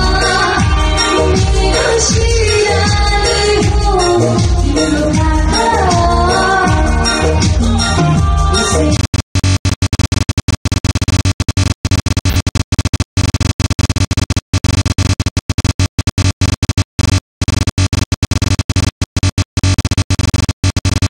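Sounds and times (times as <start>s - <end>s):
live band playing: 0.0s - 9.0s
woman singing into a microphone: 0.0s - 9.0s
glitchy electronic music: 0.0s - 21.0s.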